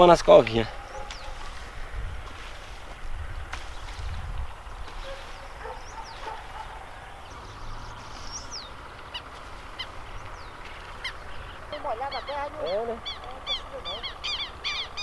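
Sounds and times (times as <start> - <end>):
birds chirping: 0.0 - 15.0
wind rumble on microphone: 0.7 - 6.8.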